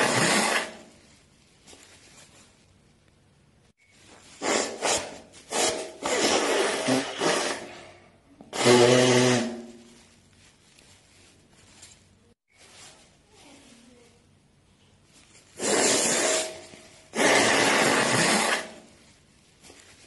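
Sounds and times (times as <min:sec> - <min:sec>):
person blowing nose into tissue: 0:00.0 - 0:00.9, 0:04.3 - 0:07.9, 0:08.5 - 0:09.9, 0:15.5 - 0:19.0.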